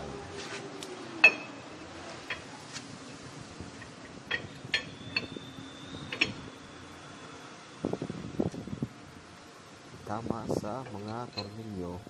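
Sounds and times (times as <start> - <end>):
metal clinks and ticks: 10.8 - 11.7.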